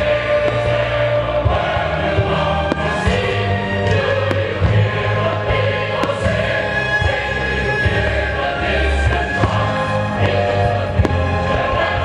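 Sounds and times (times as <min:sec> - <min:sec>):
loud music with sustained tones: 0:00.0 - 0:12.0
fireworks bangs: 0:00.3 - 0:01.2, 0:02.6 - 0:08.3, 0:09.0 - 0:11.8.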